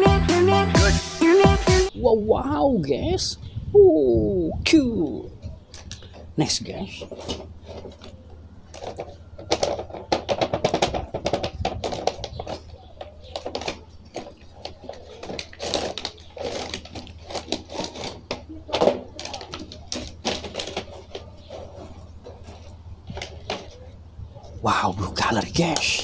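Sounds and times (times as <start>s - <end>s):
plastic and cardboard crackling: 5.4s - 26.0s.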